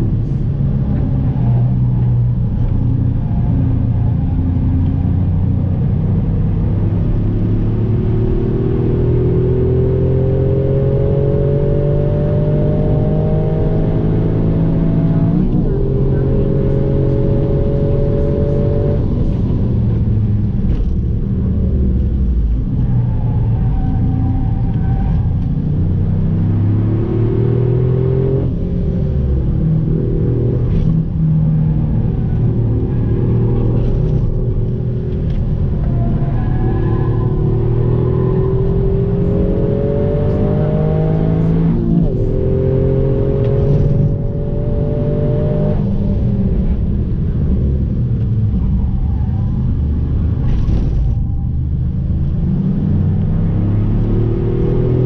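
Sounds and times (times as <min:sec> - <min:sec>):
car engine accelerating: 0:00.0 - 0:55.0
road and tyre noise: 0:00.0 - 0:55.0.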